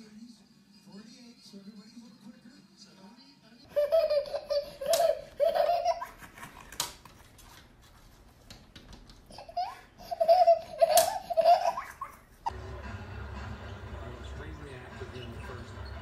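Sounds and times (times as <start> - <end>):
toddler giggling: 3.7 - 6.6, 9.3 - 12.4.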